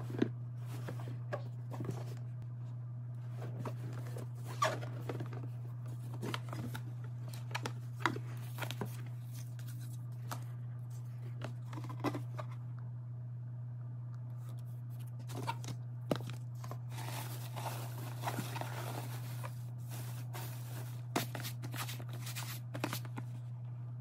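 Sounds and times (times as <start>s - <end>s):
steady low hum: 0.0s - 24.0s
cardboard box and paper rustling: 3.2s - 12.6s, 14.9s - 23.4s.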